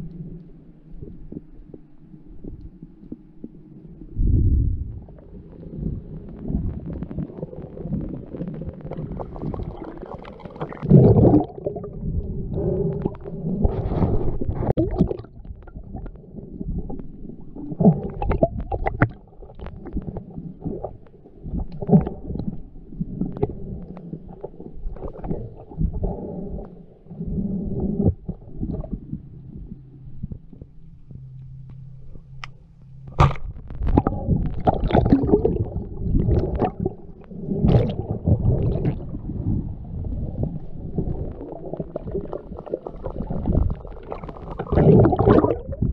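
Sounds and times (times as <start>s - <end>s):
muffled underwater rumbling: 0.0s - 45.9s
clicks and knocks underwater: 4.2s - 45.9s
water surge: 33.1s - 45.9s.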